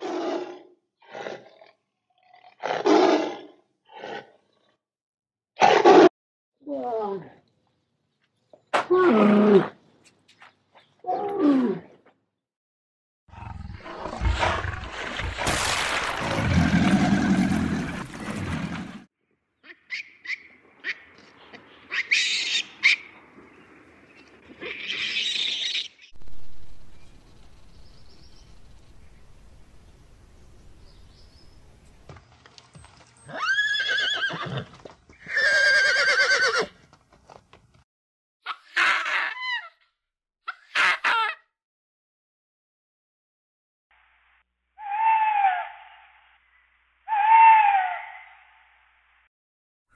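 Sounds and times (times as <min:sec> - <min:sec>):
horse whinnying: 0:33.3 - 0:36.7.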